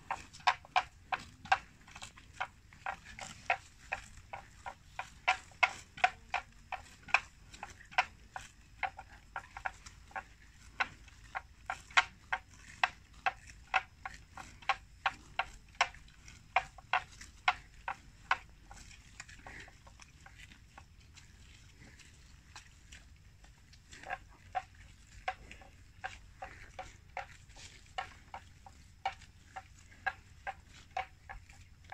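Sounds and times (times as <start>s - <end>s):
buffalo tearing grass: 24.9s - 31.8s.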